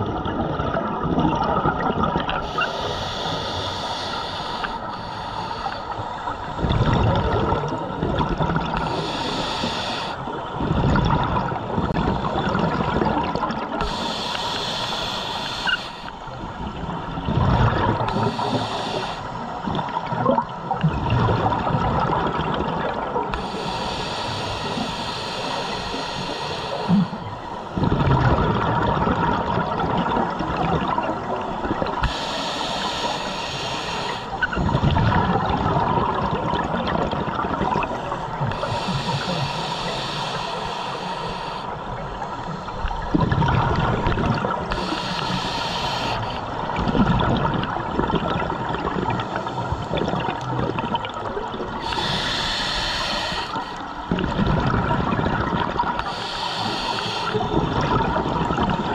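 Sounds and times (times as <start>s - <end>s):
exhaled bubbles gurgling: 0.0s - 58.9s
regulator inhale hiss: 2.4s - 6.8s, 8.7s - 10.4s, 11.8s - 12.9s, 13.8s - 16.6s, 18.0s - 19.7s, 23.3s - 27.8s, 32.0s - 34.6s, 38.0s - 43.2s, 44.6s - 46.6s, 49.2s - 50.5s, 51.8s - 54.0s, 56.0s - 57.6s.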